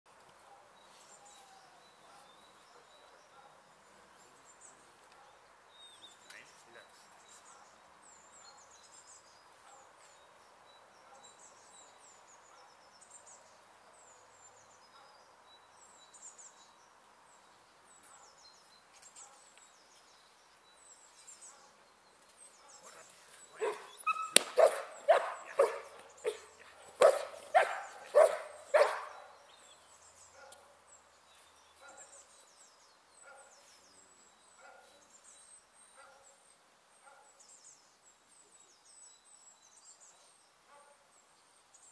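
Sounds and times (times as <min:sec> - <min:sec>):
birds chirping faintly: 0:00.1 - 0:41.9
dog barking: 0:03.3 - 0:03.6, 0:23.6 - 0:29.3, 0:33.2 - 0:33.5, 0:34.6 - 0:35.0, 0:36.0 - 0:36.3, 0:37.0 - 0:37.4.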